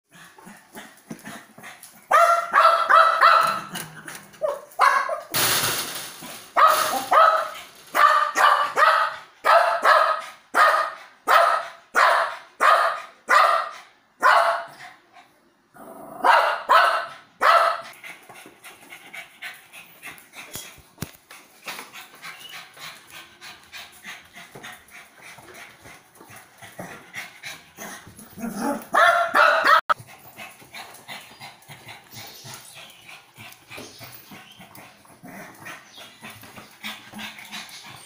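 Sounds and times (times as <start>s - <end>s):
small dog barking: 2.1s - 3.7s, 4.4s - 5.3s, 6.6s - 14.8s, 16.2s - 17.9s, 28.9s - 30.0s.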